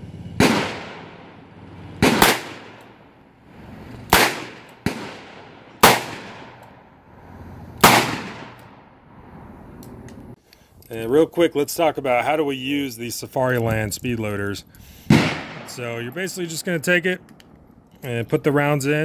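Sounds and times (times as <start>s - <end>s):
gunshots with echo: 0.4s - 3.0s, 4.1s - 6.6s, 7.8s - 8.8s, 15.1s - 16.1s.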